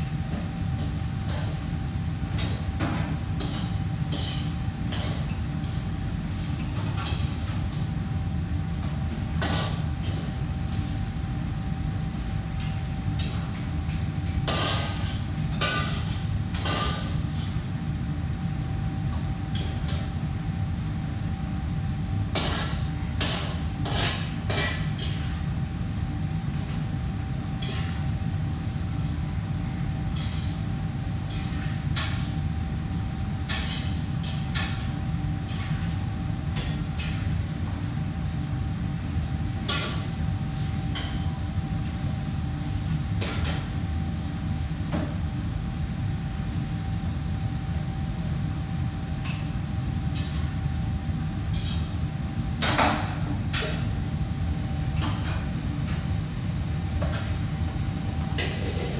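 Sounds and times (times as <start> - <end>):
low machine hum: 0.0 - 58.9.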